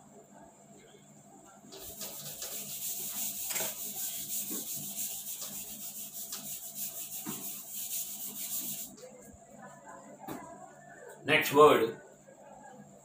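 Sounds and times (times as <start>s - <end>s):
eraser rubbing on whiteboard: 1.8s - 9.0s.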